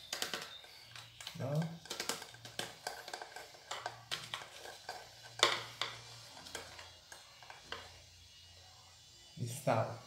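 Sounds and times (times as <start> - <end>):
metal spoon scraping salt: 0.5 - 7.9.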